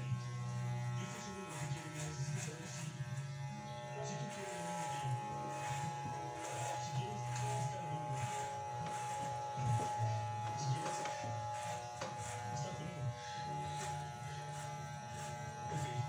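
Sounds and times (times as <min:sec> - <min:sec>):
electric hair clippers buzzing: 0:00.0 - 0:16.0.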